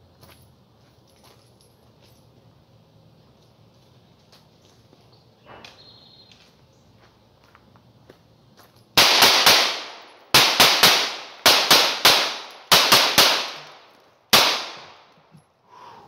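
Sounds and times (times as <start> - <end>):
pistol shots echoing: 9.0 - 15.2.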